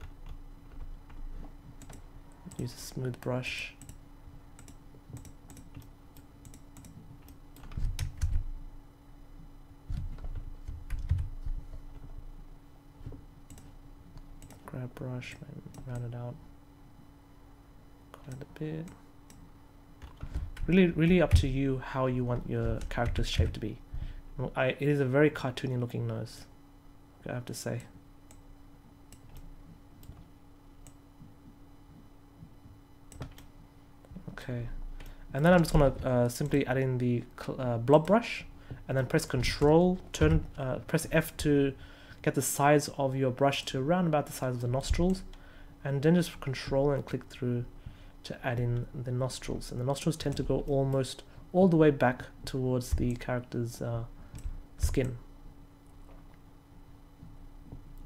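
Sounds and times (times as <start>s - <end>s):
faint steady hum: 0.0s - 58.0s
computer keyboard and mouse clicks: 1.8s - 2.6s, 4.6s - 8.4s, 14.4s - 14.7s, 33.1s - 33.5s.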